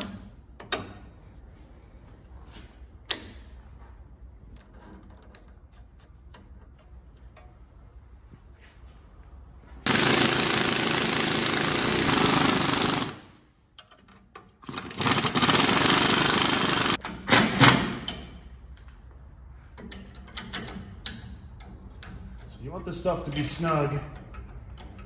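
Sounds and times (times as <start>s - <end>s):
pneumatic impact wrench hammering: 9.9s - 13.9s, 14.6s - 18.4s.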